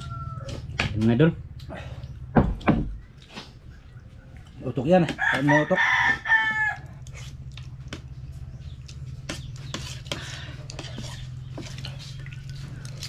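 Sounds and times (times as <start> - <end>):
rooster crowing: 0.0 - 0.7, 5.1 - 7.0
steady low hum: 0.0 - 5.3, 6.2 - 13.0.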